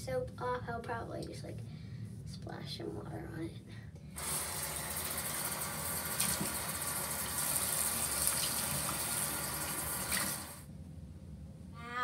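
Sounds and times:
faucet running: 4.2s - 10.6s
water splashing onto face: 6.1s - 6.7s.

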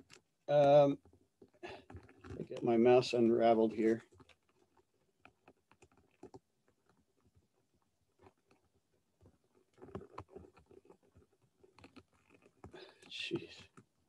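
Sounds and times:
computer mouse and keyboard clicks: 9.6s - 14.0s.

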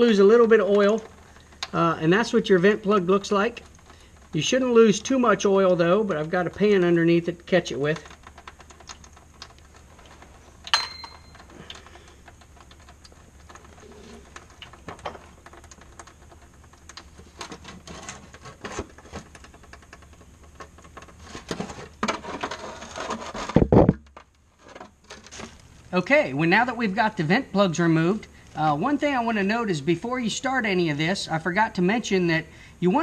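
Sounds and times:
hand tools clicking and tapping: 8.0s - 17.7s
sharp metallic clink: 10.7s - 11.4s.

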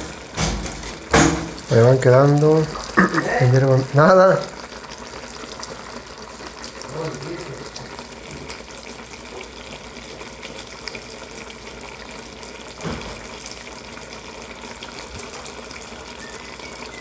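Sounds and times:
sugar syrup bubbling and sizzling: 0.0s - 17.0s.

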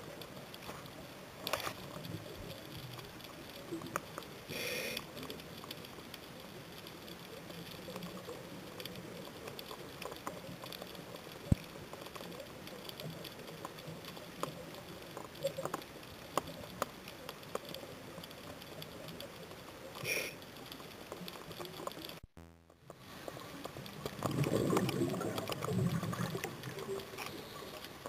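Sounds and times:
crackling clicks: 0.0s - 28.0s
faint steady underwater hiss: 0.0s - 28.0s
regulator bubbles gurgling: 22.9s - 28.0s.

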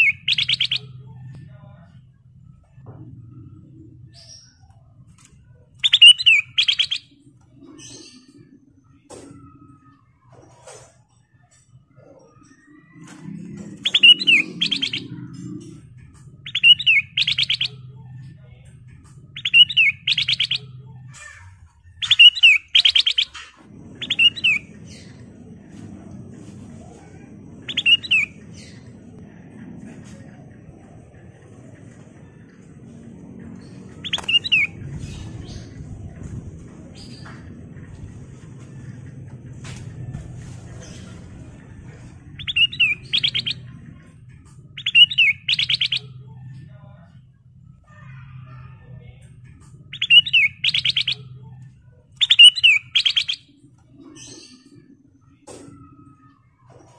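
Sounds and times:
bird singing whistled notes: 0.0s - 0.9s, 5.8s - 7.1s, 16.4s - 17.8s, 27.7s - 28.4s, 44.8s - 46.1s, 49.9s - 51.2s, 52.2s - 53.5s
bird singing warbling phrases: 0.0s - 2.1s, 2.7s - 10.2s, 11.9s - 25.4s, 27.1s - 29.4s, 31.9s - 36.4s, 41.9s - 47.2s, 47.8s - 56.9s
faint low hum: 0.0s - 56.9s.

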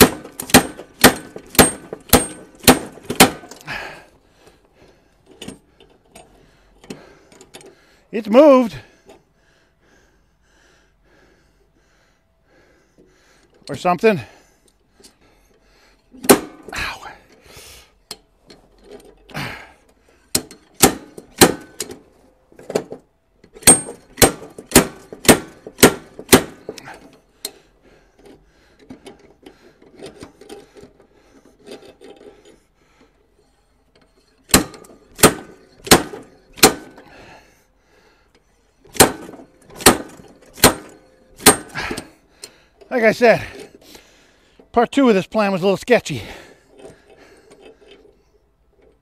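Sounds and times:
slide hammer metal clanks: 0.0s - 3.7s, 16.2s - 16.7s, 20.3s - 27.6s, 33.4s - 37.2s, 38.8s - 42.6s.

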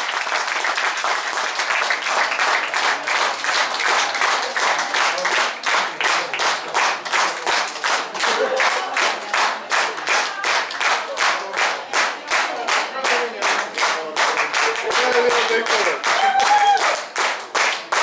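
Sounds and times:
audience applause: 0.0s - 18.0s
rhythmic clapping in unison: 0.0s - 18.0s.

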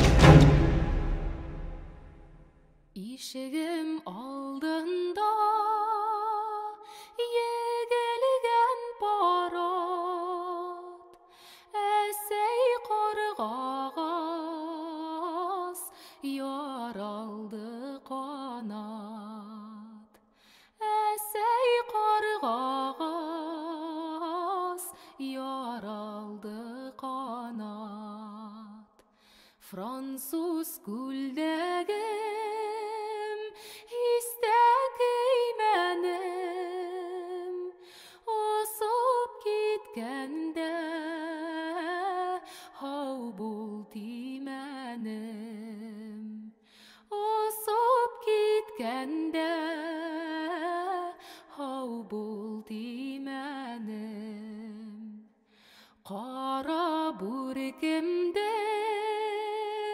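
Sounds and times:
woman singing unaccompanied: 3.0s - 20.1s, 20.8s - 28.9s, 29.7s - 46.5s, 47.1s - 55.2s, 56.1s - 59.9s.

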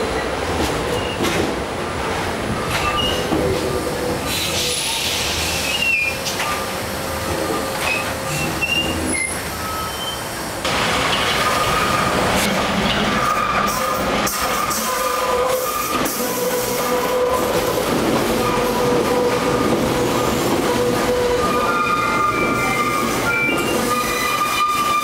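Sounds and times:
train rail rumble: 0.0s - 25.0s
high wheel squeals: 4.2s - 6.7s, 7.8s - 10.3s, 20.8s - 25.0s.

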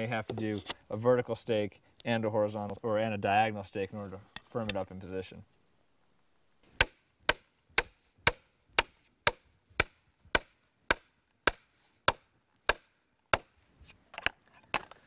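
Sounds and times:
hammer driving wooden stake: 6.7s - 13.6s.

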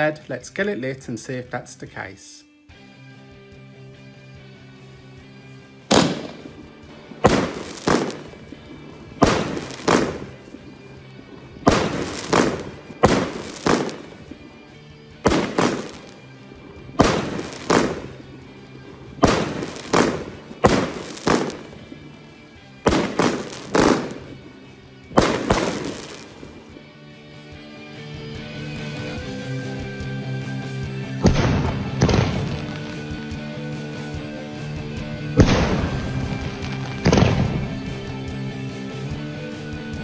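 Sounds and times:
background music: 0.0s - 40.0s
firework shots banging: 5.9s - 10.8s, 11.6s - 22.2s, 22.8s - 26.8s, 31.2s - 33.4s, 35.4s - 38.0s.

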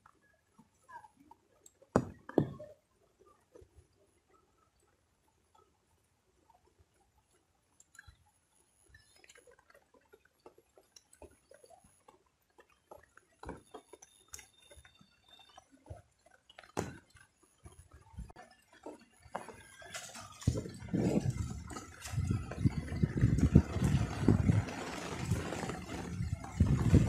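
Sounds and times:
wading in shallow water: 5.4s - 27.0s.

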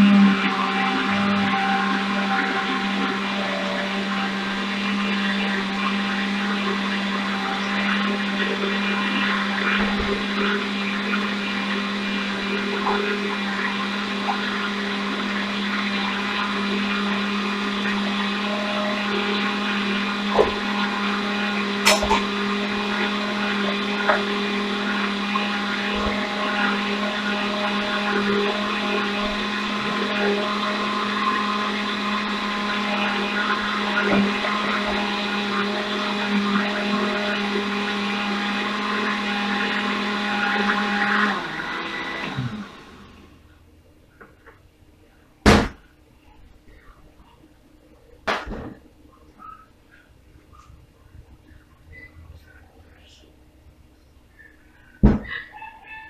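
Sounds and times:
blender running: 0.0s - 43.4s.

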